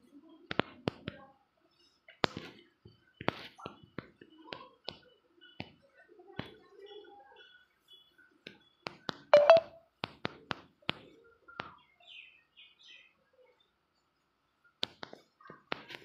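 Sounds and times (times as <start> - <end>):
faint chirps: 9.4 - 9.8.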